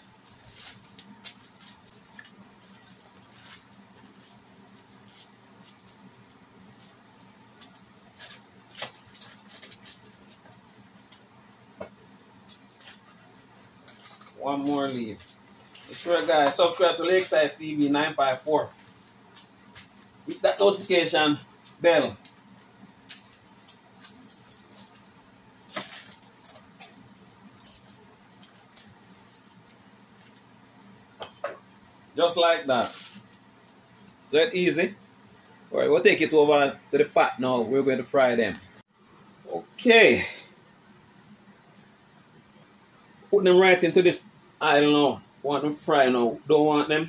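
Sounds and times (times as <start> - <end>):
foil crinkling and rustling: 0.0 - 11.3, 12.2 - 30.4, 32.5 - 33.4.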